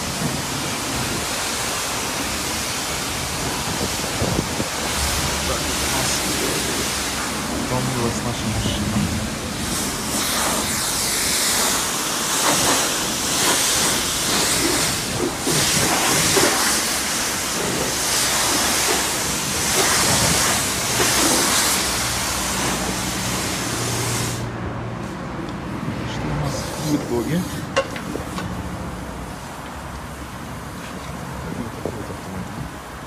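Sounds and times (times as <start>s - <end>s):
pressure washer spraying water: 0.0s - 24.5s.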